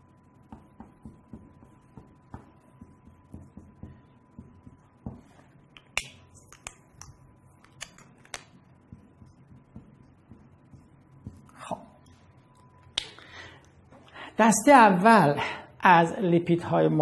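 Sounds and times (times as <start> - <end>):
faint steady hum: 0.0 - 17.0
marker writing on whiteboard: 0.5 - 11.5.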